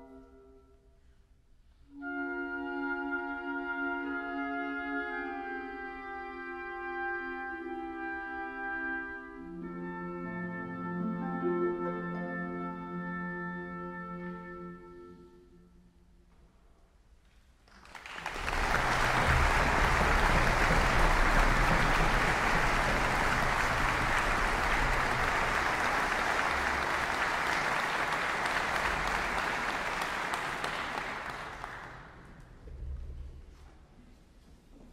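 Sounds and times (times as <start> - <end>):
audience applauding: 17.7 - 32.3.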